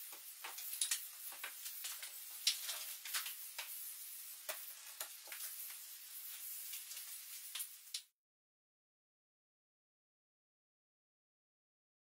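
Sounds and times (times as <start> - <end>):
steady hiss: 0.0 - 8.1.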